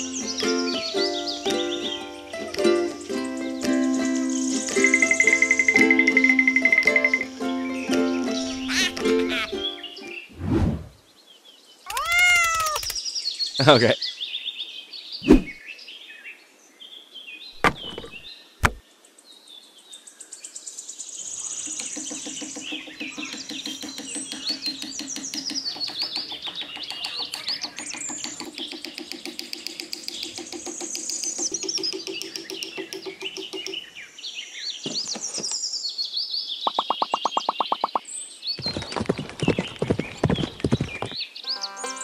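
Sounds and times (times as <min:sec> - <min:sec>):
birds chirping: 0:02.9 - 0:14.0, 0:15.0 - 0:15.8, 0:17.5 - 0:18.8, 0:20.5 - 0:42.0
sharp knocks: 0:17.6 - 0:18.8, 0:21.6 - 0:33.8.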